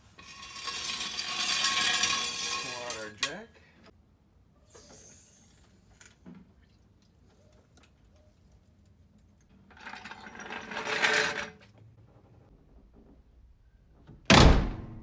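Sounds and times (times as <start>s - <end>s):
jack wheels rattling on concrete: 0.0s - 3.6s, 9.4s - 11.8s.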